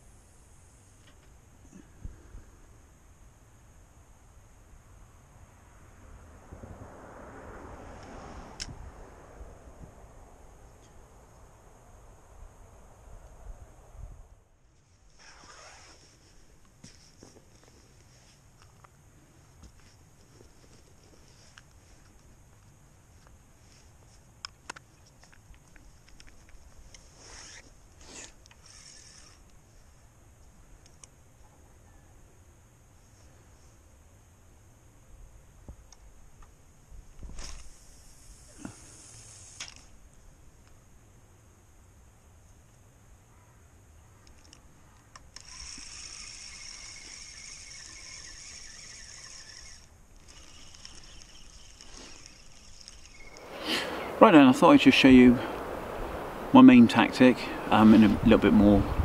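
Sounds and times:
rustling scrapes: 0:14.8 - 0:18.4, 0:27.0 - 0:29.9
fishing tackle clicks: 0:44.2 - 0:53.4.

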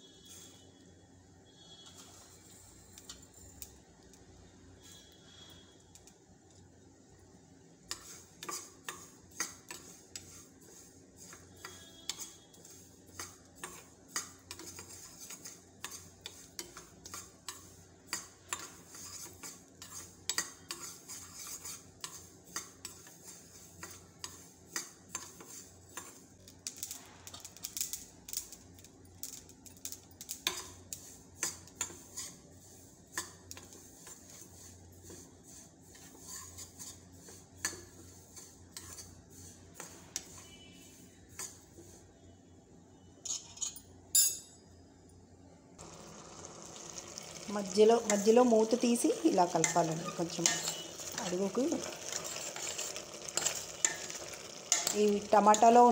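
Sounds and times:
metal spoon scraping steel pan: 0:07.9 - 0:28.6, 0:29.2 - 0:42.0, 0:43.2 - 0:44.4, 0:46.1 - 0:55.9.

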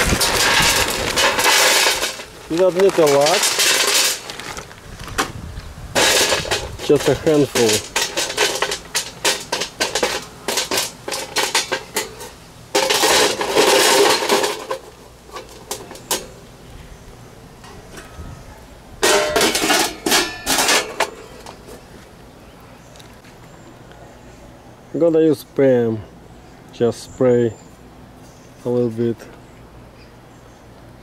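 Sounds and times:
metal rack and tray clattering: 0:00.0 - 0:04.6, 0:06.0 - 0:16.4, 0:19.0 - 0:21.8
wood chips rattling on metal pan: 0:00.0 - 0:04.7, 0:06.0 - 0:16.3, 0:19.0 - 0:21.4.

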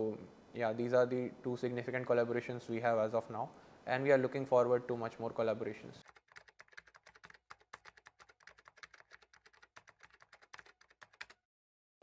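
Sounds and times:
keyboard typing clicks: 0:06.0 - 0:11.4.

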